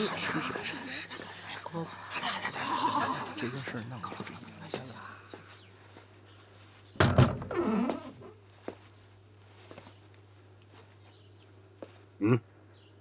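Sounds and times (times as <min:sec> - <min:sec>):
soft footsteps: 0:02.2 - 0:12.2
wooden door creaking: 0:07.0 - 0:08.4.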